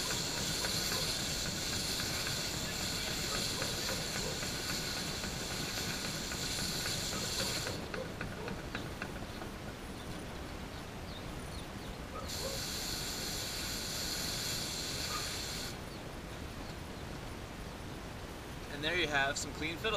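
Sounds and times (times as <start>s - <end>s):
hose spraying water: 0.0s - 8.6s, 12.3s - 15.8s.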